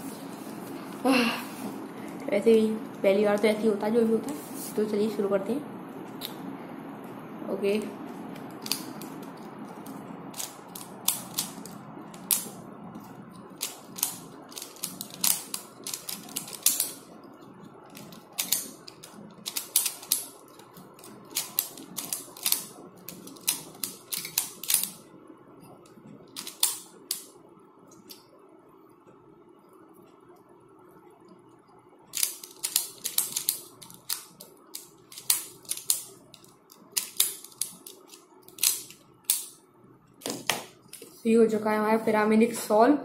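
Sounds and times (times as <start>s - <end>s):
plastic puzzle pieces clicking: 8.6s - 9.3s, 10.3s - 12.6s, 13.6s - 17.1s, 17.9s - 25.0s, 26.4s - 27.3s, 32.2s - 39.5s.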